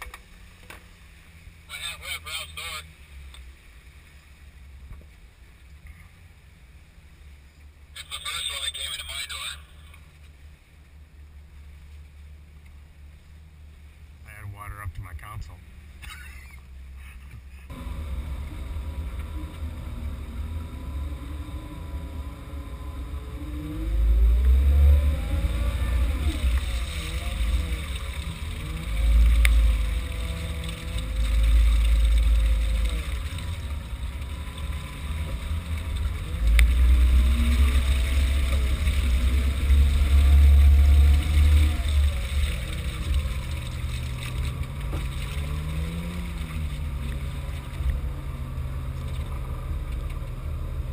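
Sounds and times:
heavy low rumbling: 16.8s - 50.9s
engine revving off-road: 17.7s - 50.9s.

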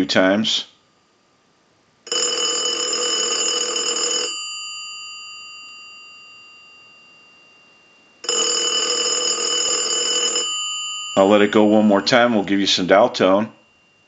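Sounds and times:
telephone bell ringing: 2.1s - 12.5s.

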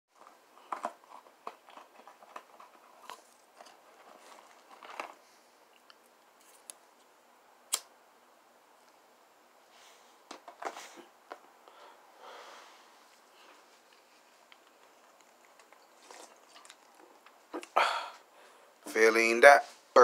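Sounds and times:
small clicks and rustles: 0.2s - 7.1s, 13.1s - 17.5s.

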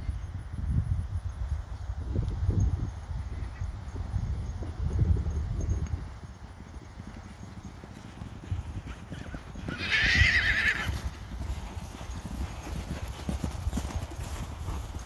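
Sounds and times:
horses galloping on grass: 0.0s - 15.0s
horse whinnying: 8.9s - 11.2s.

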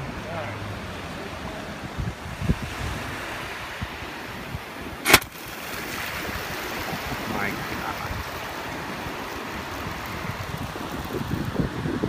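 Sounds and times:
surf wash: 0.0s - 12.0s
wind on microphone: 1.2s - 12.0s
compressed air cannon blast: 5.0s - 5.6s.

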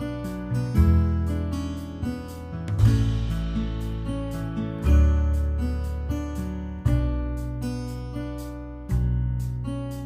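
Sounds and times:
strummed acoustic guitar: 0.0s - 10.0s.

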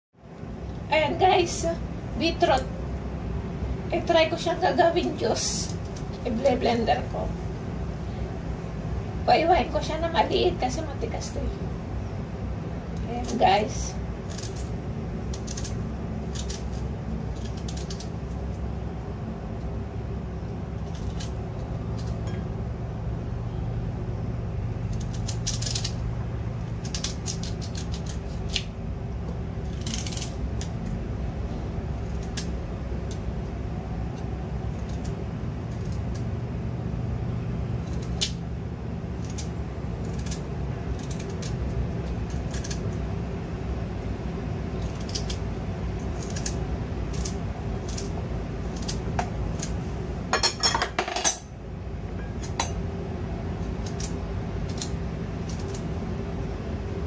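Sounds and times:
steady low hum: 0.1s - 57.0s
slices dropping onto ceramic plate: 50.3s - 51.4s.

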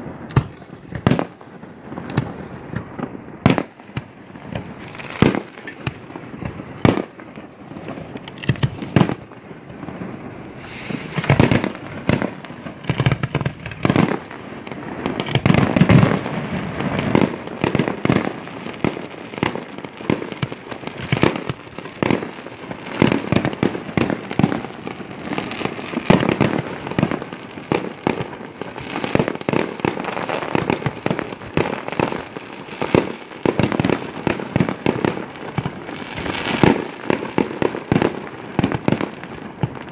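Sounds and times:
fireworks bursting with sharp bangs: 0.0s - 39.9s
fireworks shells launching: 0.2s - 14.3s.

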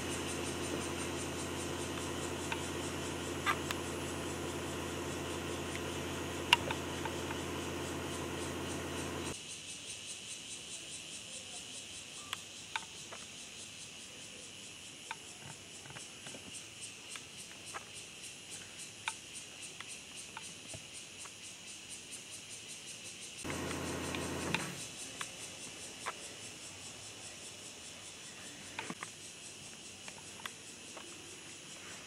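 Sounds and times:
low hum: 0.0s - 9.3s
insects trilling: 0.0s - 32.0s.

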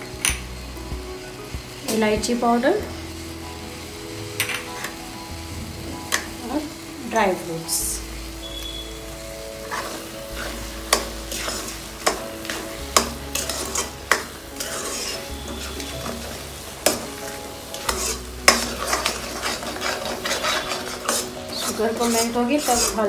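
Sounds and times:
light sizzle: 0.0s - 23.0s
spatula scraping metal pan: 9.6s - 23.0s.

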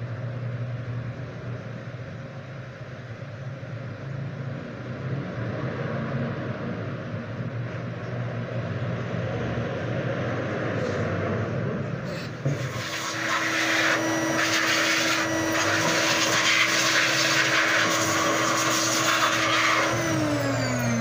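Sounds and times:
whooshing motor noise: 12.1s - 21.0s
steady hum: 12.6s - 21.0s.

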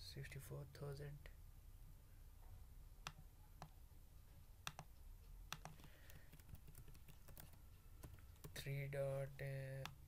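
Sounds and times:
computer mouse clicks: 4.6s - 4.9s, 5.5s - 8.6s
keyboard keys clicking: 5.5s - 8.6s.

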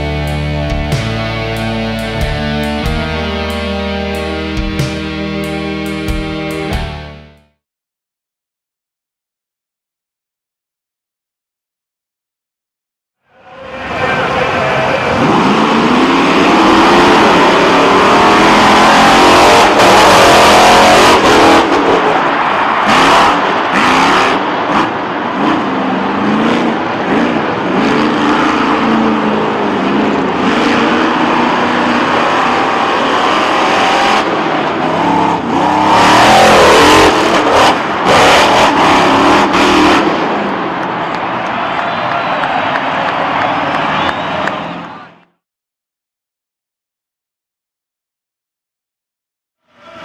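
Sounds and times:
monster truck engine revving: 0.0s - 7.3s, 13.5s - 45.2s.

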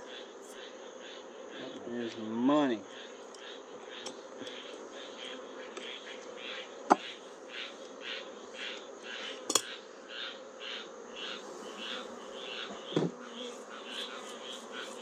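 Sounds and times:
honeybees humming: 0.0s - 15.0s
wooden frame knocking on hive box: 12.8s - 13.2s.

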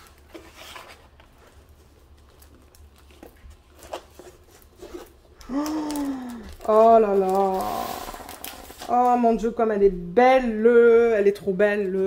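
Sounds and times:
canvas and plastic film rustling: 0.0s - 9.6s.

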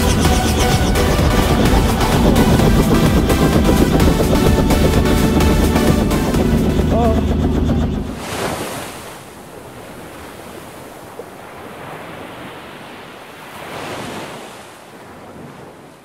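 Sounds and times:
ocean waves washing in: 0.0s - 16.0s.

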